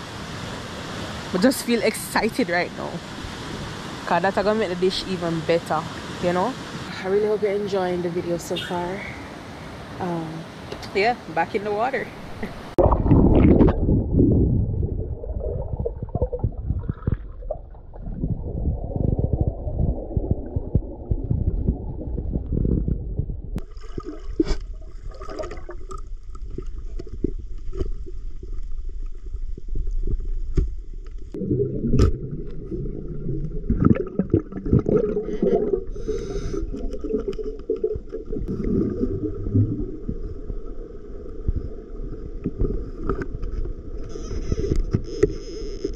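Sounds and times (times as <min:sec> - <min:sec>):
muffled underwater sloshing: 0:12.1 - 0:45.9.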